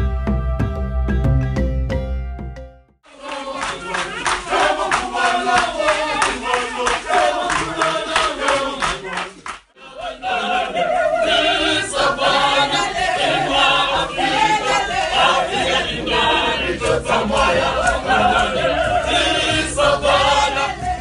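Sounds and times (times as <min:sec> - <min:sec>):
choir singing in harmony: 0:03.0 - 0:21.0
rhythmic hand clapping: 0:03.1 - 0:09.7, 0:11.2 - 0:21.0.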